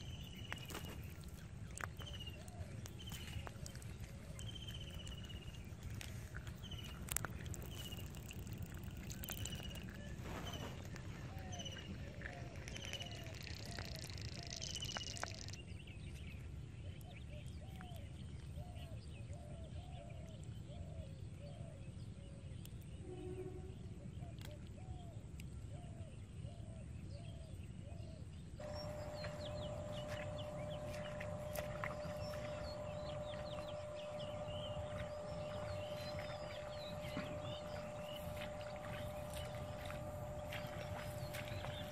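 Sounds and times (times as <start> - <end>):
steady hum: 0.0 - 15.6, 28.6 - 41.9
lower repeated bird calls: 0.0 - 21.8, 28.1 - 41.9
constant low rumble: 0.0 - 41.9.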